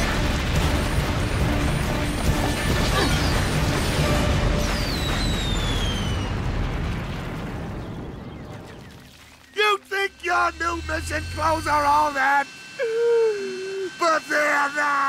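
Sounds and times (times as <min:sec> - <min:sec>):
cartoon explosion blast: 0:00.0 - 0:09.0
falling whistles: 0:02.9 - 0:06.5, 0:07.7 - 0:15.0.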